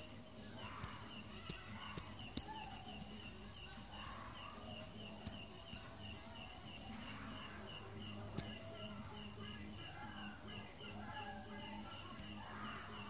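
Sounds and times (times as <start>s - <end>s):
faint steady chirping: 0.0s - 13.0s
sharp ticks: 0.6s - 13.0s.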